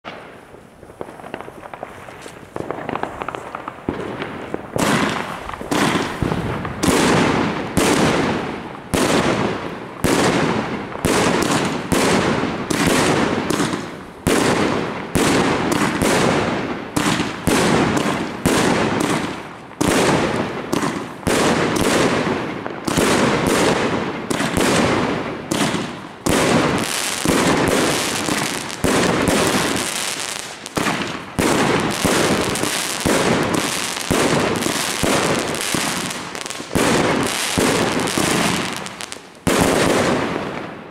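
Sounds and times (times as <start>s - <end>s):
firework cake bangs: 2.5s - 8.4s.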